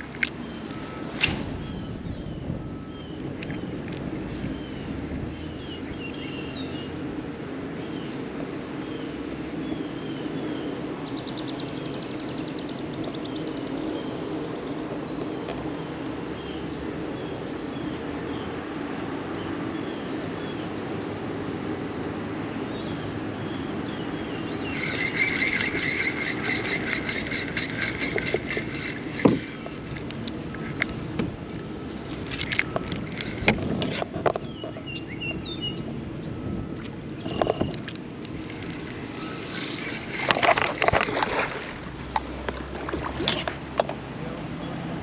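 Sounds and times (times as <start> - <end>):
water noise: 0.0 - 9.6, 20.8 - 34.9, 35.9 - 45.0
wind: 0.0 - 45.0
fishing reel whirring and clicking: 24.6 - 34.1, 37.2 - 43.9.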